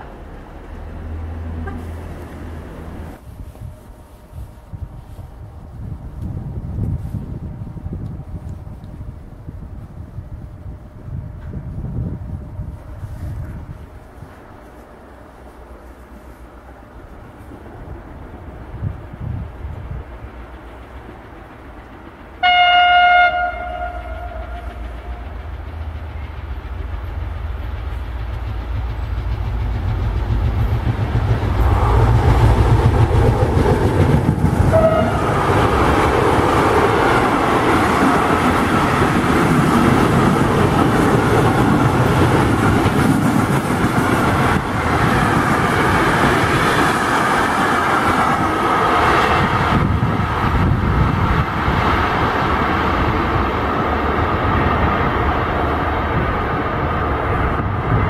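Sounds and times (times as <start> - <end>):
freight train passing: 0.0 - 58.0
train horn: 1.0 - 2.6, 22.4 - 25.6, 34.6 - 35.8.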